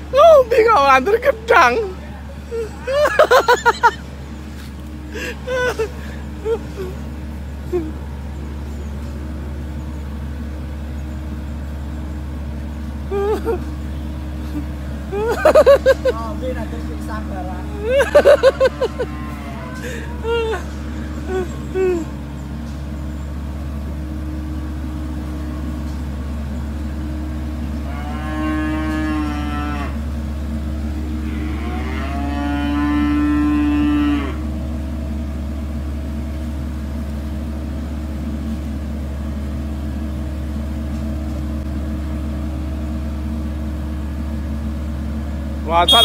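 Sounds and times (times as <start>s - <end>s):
combine harvester diesel engine: 0.0s - 46.0s
long drawn-out pitched calls: 45.7s - 46.0s.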